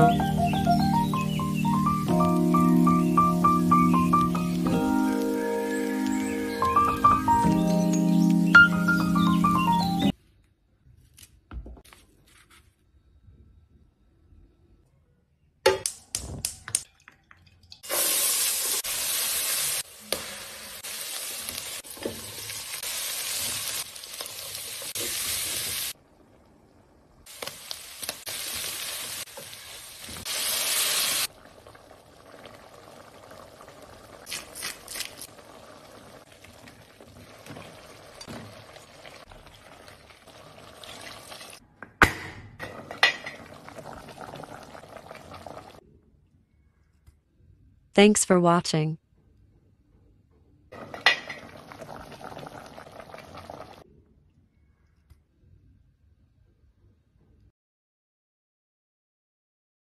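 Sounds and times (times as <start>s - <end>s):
meat and peppers sizzling in oil: 17.8s - 26.0s, 27.3s - 41.6s
quiet bubbling: 43.3s - 45.8s.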